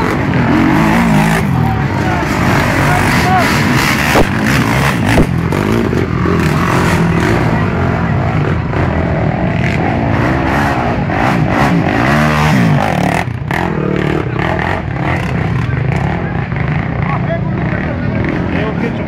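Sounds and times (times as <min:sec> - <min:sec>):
quad engines revving: 0:00.0 - 0:19.0.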